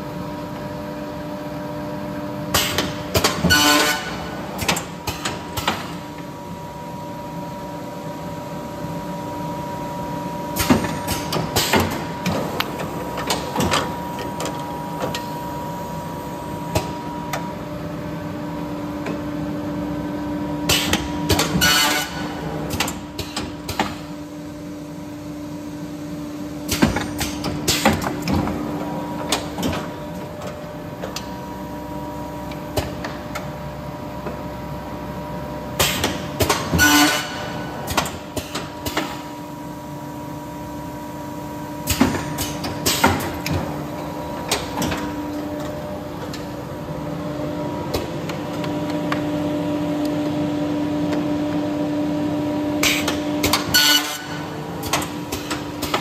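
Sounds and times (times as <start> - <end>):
binding machine humming: 0.1 - 56.0
mechanism clunks and clatters: 26.6 - 31.3, 35.8 - 39.3, 41.8 - 46.5, 52.8 - 56.0.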